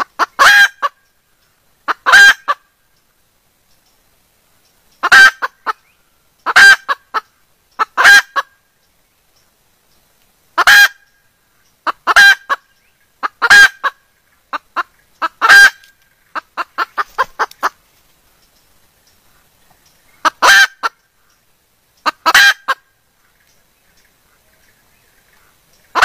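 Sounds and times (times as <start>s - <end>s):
hen calling harshly: 0.0s - 1.0s, 5.0s - 5.8s, 6.4s - 8.5s, 10.6s - 11.1s, 11.8s - 17.8s, 20.2s - 21.0s, 22.0s - 22.9s
hen clucking: 0.0s - 1.0s, 1.8s - 2.6s, 5.0s - 8.5s, 10.6s - 11.0s, 11.8s - 17.8s, 20.1s - 21.4s, 22.0s - 24.7s, 25.3s - 26.0s.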